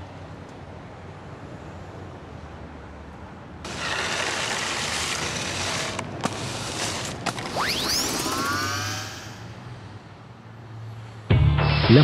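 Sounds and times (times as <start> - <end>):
broom sweeping pavement: 3.6 - 8.2
whistling swoosh sound effect: 7.5 - 9.6.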